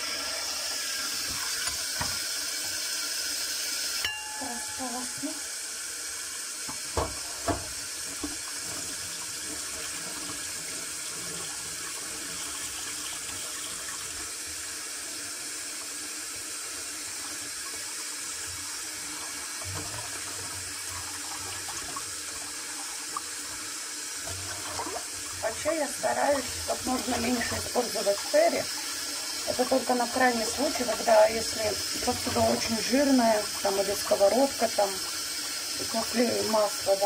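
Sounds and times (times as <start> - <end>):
tap running into steel sink: 1.2 - 2.3, 6.6 - 8.9
dishes and cutlery rinsed: 4.0 - 5.5, 29.6 - 33.2.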